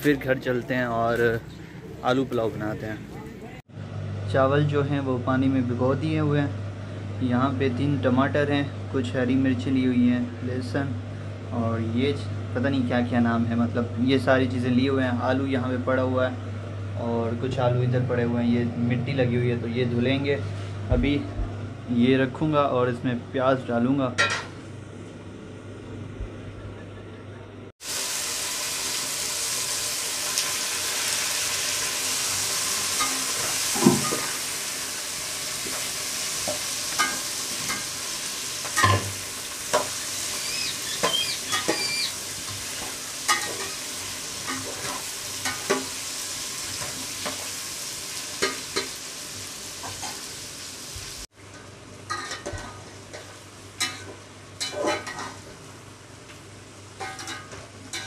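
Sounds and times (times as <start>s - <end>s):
potatoes sizzling in hot oil: 27.8s - 55.6s.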